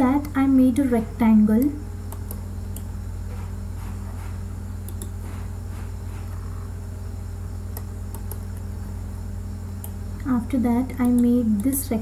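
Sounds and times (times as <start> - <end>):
low electrical hum: 0.0 - 12.0
faint clicks: 7.7 - 8.7.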